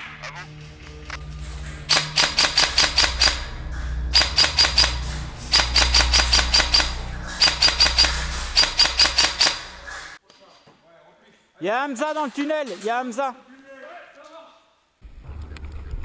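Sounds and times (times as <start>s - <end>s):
low steady hum: 0.0s - 10.2s
airsoft rifle shots: 1.9s - 3.5s, 4.1s - 10.2s.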